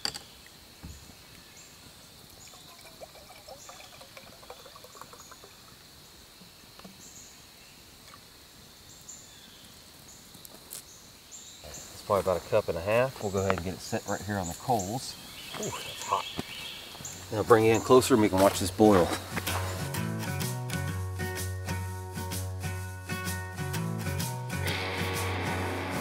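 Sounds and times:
water trickling into metal cup: 2.4 - 5.9.

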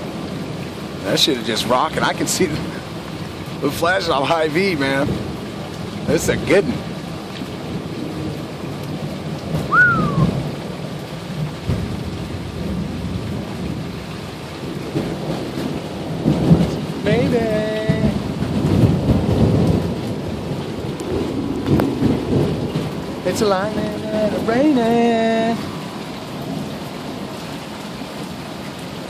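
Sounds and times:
heavy rain: 0.0 - 29.0
rolling thunder: 4.4 - 27.4.

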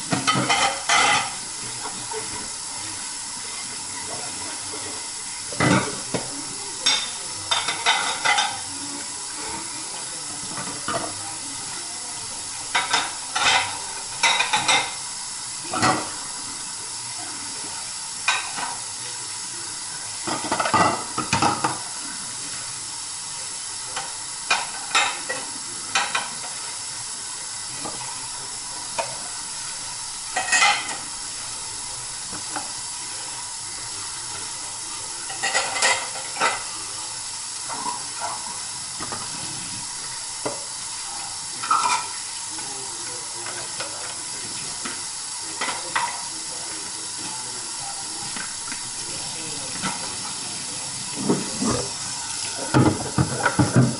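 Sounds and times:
dishes clinking: 0.1 - 2.4, 5.5 - 8.7, 12.7 - 15.0, 15.7 - 16.2, 20.2 - 21.8, 30.3 - 31.1, 35.3 - 36.7, 41.6 - 42.2, 45.6 - 46.2, 52.6 - 53.9
tap running into sink: 51.2 - 53.9.

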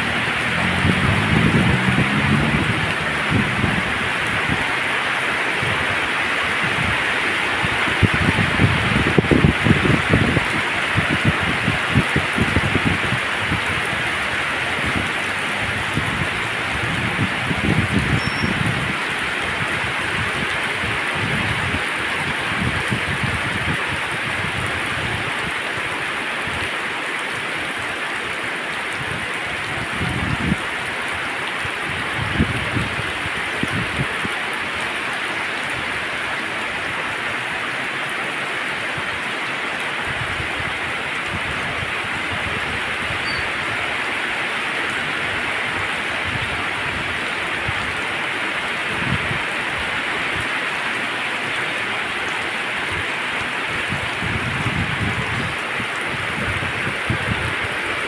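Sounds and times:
low rumbles: 0.0 - 4.9
heavy rain hissing: 0.0 - 58.0.

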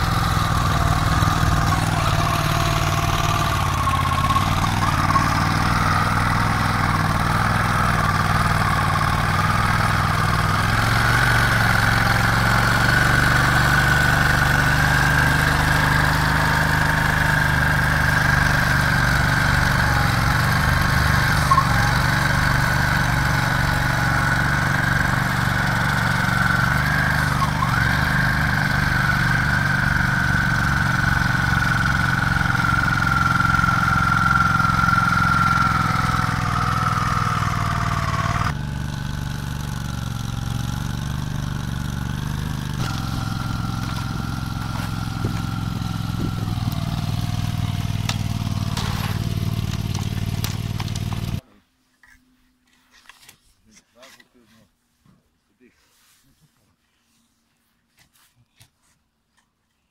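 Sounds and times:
engine running under load: 0.0 - 51.4
steady whine: 39.8 - 51.0.

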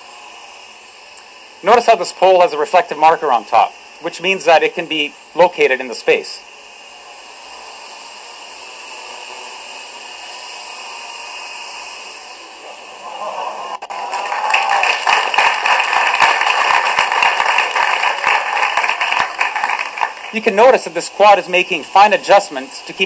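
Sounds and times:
drone rotors whirring: 0.0 - 23.0
audience applause: 13.8 - 20.4.

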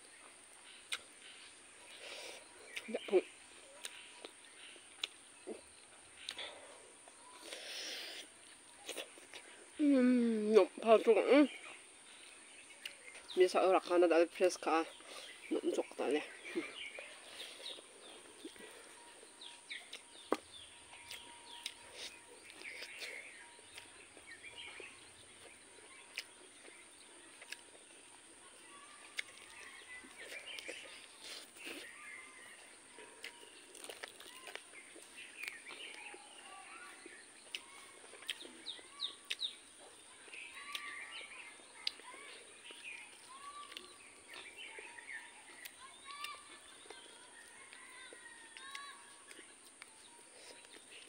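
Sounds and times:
birds chirping: 0.0 - 51.0
chewing: 0.2 - 9.7, 11.6 - 13.4, 14.9 - 51.0
mouth clicks and smacks: 0.8 - 1.2, 3.8 - 5.6, 39.2 - 39.6.

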